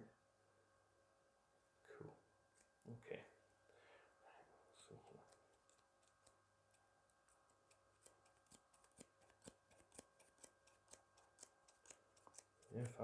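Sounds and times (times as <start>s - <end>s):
scissors snipping hair: 7.3s - 13.0s.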